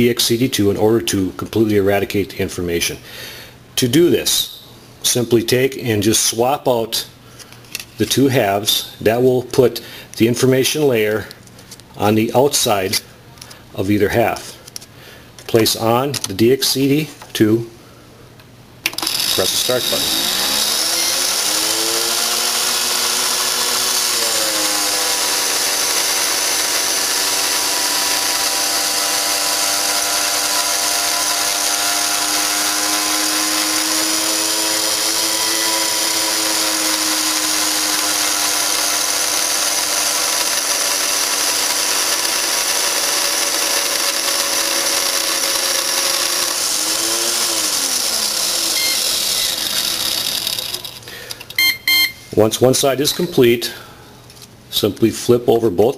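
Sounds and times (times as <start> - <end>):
motor whine: 19.0 - 51.0.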